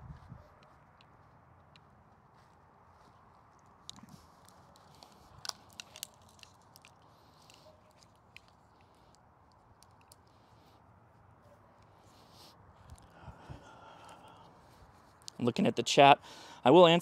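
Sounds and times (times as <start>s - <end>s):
footsteps on lawn: 0.0s - 6.2s.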